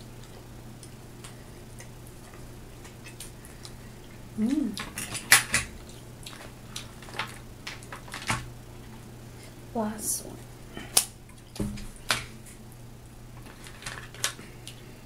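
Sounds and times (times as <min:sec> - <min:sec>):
low steady hum: 0:00.0 - 0:15.0
person humming: 0:04.4 - 0:04.8.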